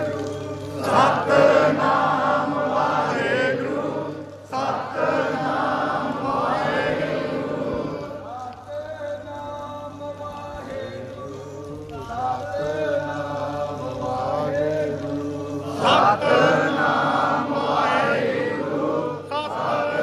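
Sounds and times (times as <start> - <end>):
voices chanting a hymn: 0.0 - 20.0.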